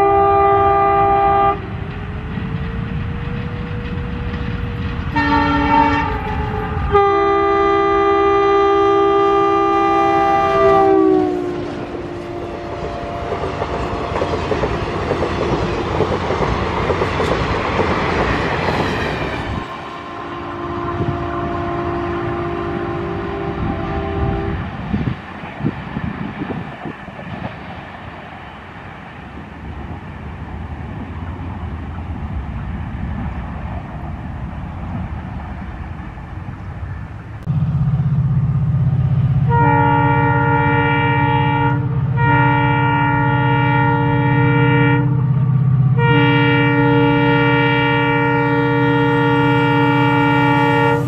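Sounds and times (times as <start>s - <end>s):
locomotive air horn blasts: 0.0s - 1.7s, 5.1s - 13.6s, 19.6s - 24.7s, 39.4s - 45.3s, 45.9s - 51.0s
train wheels clattering on rails: 1.4s - 7.0s, 11.5s - 20.2s.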